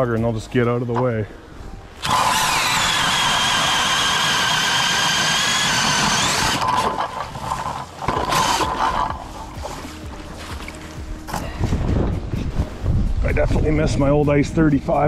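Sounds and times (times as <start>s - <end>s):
drill boring through ice: 2.0s - 9.2s.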